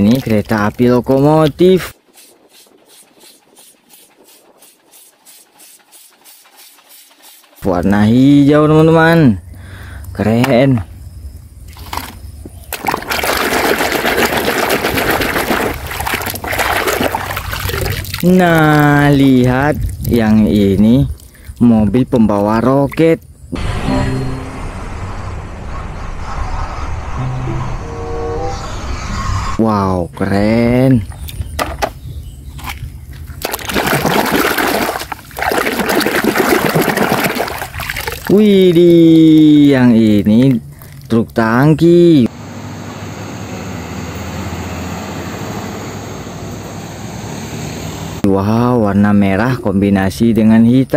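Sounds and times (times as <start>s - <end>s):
toy scrubbed in soapy water: 1.9s - 7.6s
water splashing in plastic basin: 11.7s - 20.4s, 32.6s - 39.4s.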